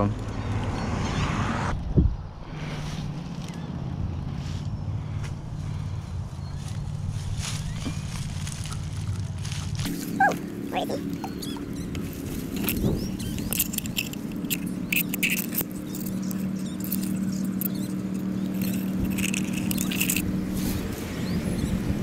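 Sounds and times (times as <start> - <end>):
scraping and rustling of dry brush: 2.5 - 3.6, 6.6 - 21.2.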